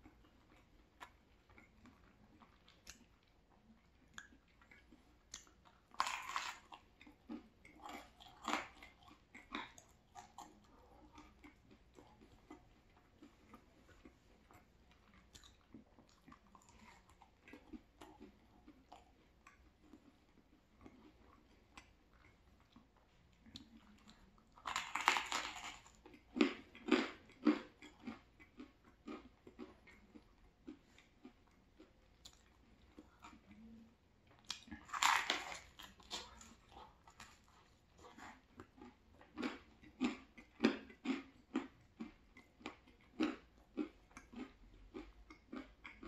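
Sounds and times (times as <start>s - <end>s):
chewing: 0.0s - 46.0s
crunching bites of crispy pizza: 5.4s - 13.6s, 23.6s - 33.8s, 34.4s - 46.0s.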